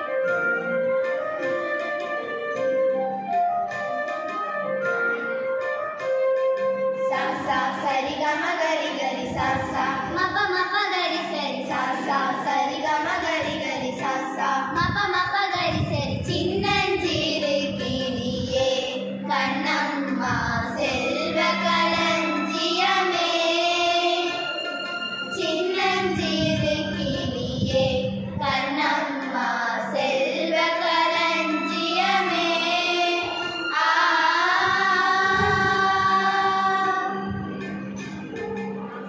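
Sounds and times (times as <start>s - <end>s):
held instrumental notes: 0.0s - 39.0s
girls singing together: 7.0s - 38.1s.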